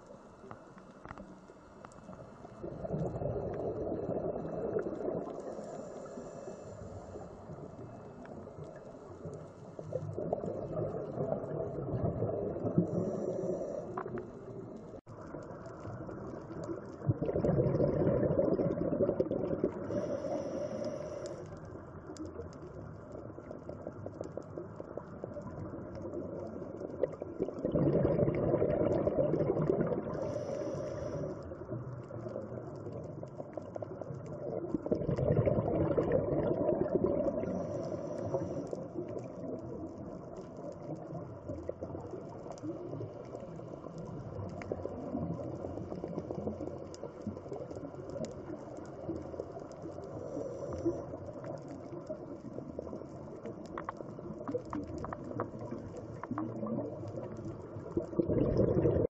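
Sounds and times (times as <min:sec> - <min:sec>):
low bubbling: 0:02.1 - 0:06.3, 0:09.8 - 0:21.0, 0:22.1 - 0:59.0
air bubbles bursting underwater: 0:02.6 - 0:05.6, 0:09.9 - 0:13.2, 0:16.0 - 0:20.2, 0:25.2 - 0:30.4, 0:32.1 - 0:38.4, 0:54.3 - 0:59.0.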